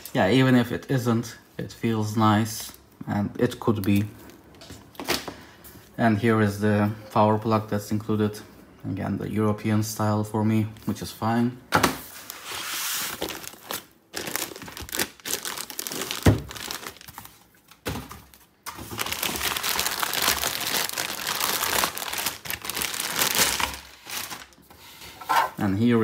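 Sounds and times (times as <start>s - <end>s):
foam packing rustling: 12.1s - 24.7s
plastic bag crinkling: 12.2s - 24.6s.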